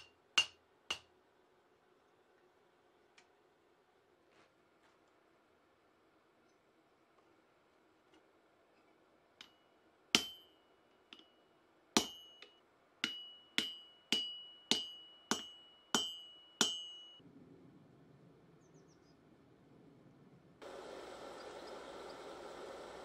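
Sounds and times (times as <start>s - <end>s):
hammer striking metal punch: 0.0s - 1.1s, 10.2s - 11.4s, 12.0s - 17.2s.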